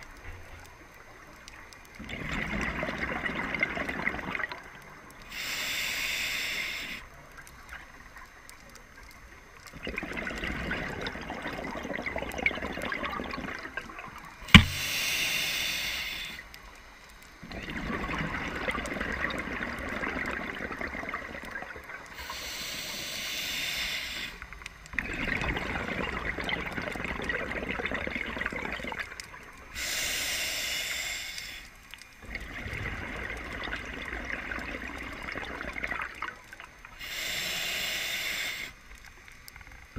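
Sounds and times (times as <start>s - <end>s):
regulator hiss on inhale: 5.0s - 7.6s, 14.4s - 17.4s, 21.9s - 24.9s, 29.6s - 32.0s, 36.8s - 39.8s
sharp knock: 14.5s - 14.8s.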